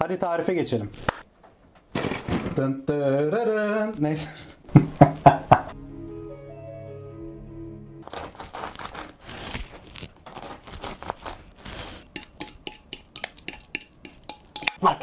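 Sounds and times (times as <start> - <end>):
soft musical chord: 5.8 - 8.0
utensil scraping in glass container: 12.0 - 14.8
utensil tapping against glass: 12.2 - 14.8.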